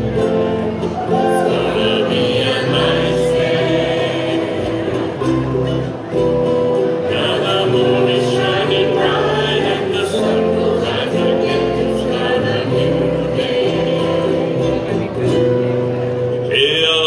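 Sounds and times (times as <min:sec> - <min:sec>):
group singing: 0:01.0 - 0:05.9, 0:07.0 - 0:15.0
male soloist singing: 0:01.1 - 0:05.0, 0:07.1 - 0:14.6, 0:16.5 - 0:17.0.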